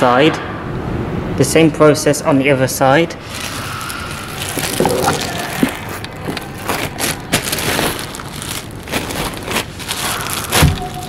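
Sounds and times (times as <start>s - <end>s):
plastic wrap crinkling: 3.2s - 11.0s.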